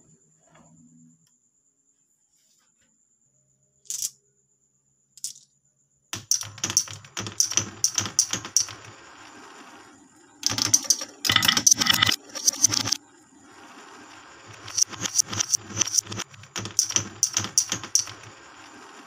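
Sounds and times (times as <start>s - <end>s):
glass marbles clattering on wood: 3.9s - 4.2s, 5.2s - 5.4s
marbles rolling rumble: 6.2s - 19.0s.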